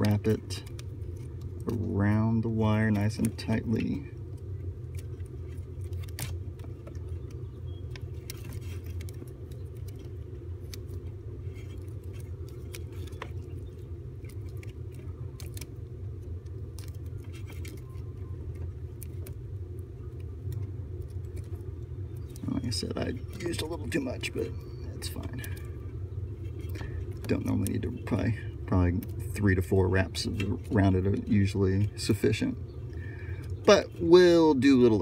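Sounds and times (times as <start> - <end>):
steady low hum: 0.0 - 35.0
tape wrapped around wire: 0.0 - 35.0.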